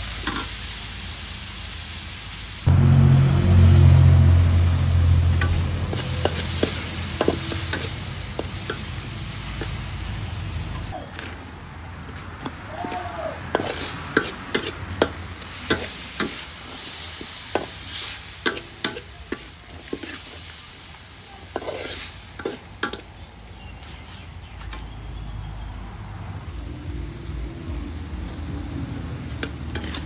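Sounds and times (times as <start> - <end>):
oil sizzling: 0.0 - 11.0, 11.9 - 23.6, 26.4 - 30.0
metal spatula scraping a wok: 5.3 - 10.0, 13.5 - 20.6, 21.4 - 23.1, 29.1 - 30.0.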